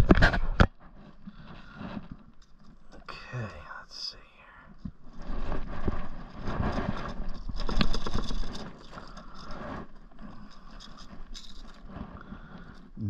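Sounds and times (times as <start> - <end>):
pliers and hooks scraping and rattling: 5.0 - 13.0.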